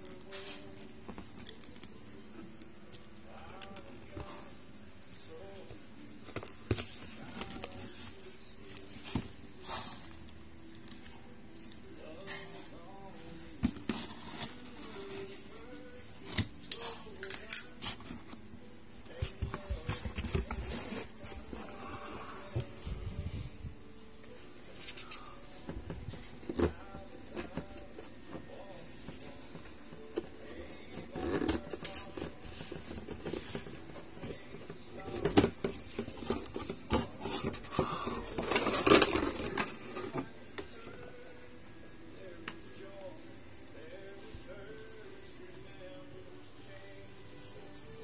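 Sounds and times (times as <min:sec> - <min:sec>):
cardboard and plastic rustling: 0:06.2 - 0:09.5, 0:16.2 - 0:23.6, 0:24.7 - 0:40.8.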